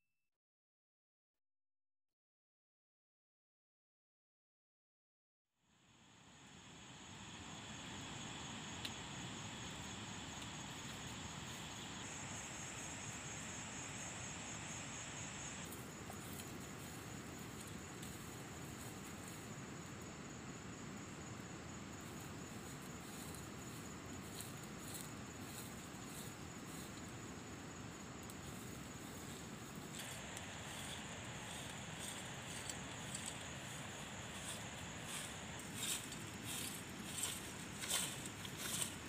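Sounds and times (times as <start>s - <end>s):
insects trilling: 5.8s - 39.0s
broom sweeping dirt: 15.4s - 19.6s, 22.1s - 27.2s, 28.3s - 39.0s.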